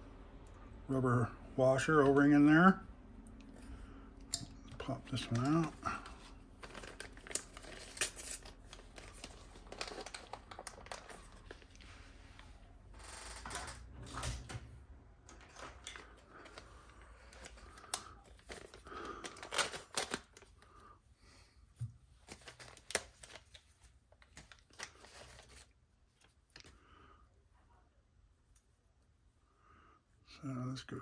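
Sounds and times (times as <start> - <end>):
hands handling plastic parts: 3.4 - 11.9, 15.3 - 20.5.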